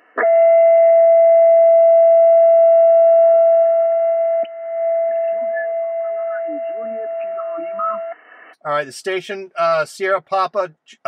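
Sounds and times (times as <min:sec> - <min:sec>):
whistle-like radio carrier tone: 0:03.8 - 0:08.2.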